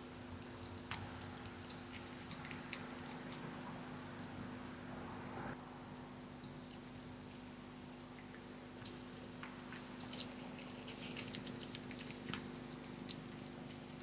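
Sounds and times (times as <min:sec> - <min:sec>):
steady low hum: 0:00.0 - 0:14.0
fox chewing crunches: 0:00.4 - 0:03.6, 0:08.8 - 0:14.0.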